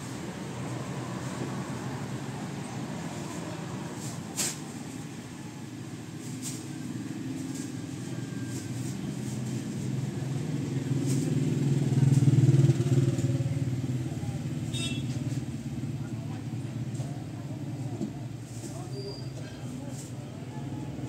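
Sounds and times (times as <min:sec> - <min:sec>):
vehicle engine passing: 0:09.2 - 0:14.3.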